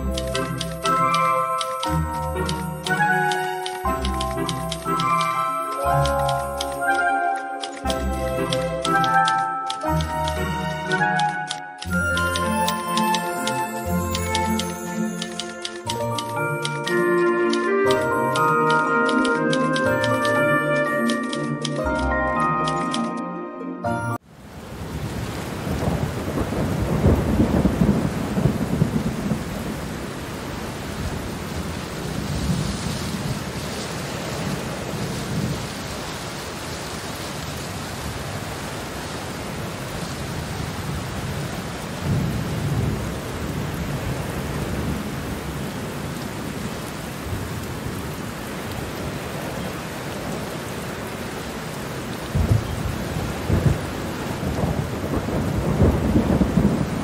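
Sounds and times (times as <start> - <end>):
steady rain: 0.0 - 23.1, 24.2 - 57.0
thunder rumbling: 24.7 - 35.8, 52.2 - 57.0.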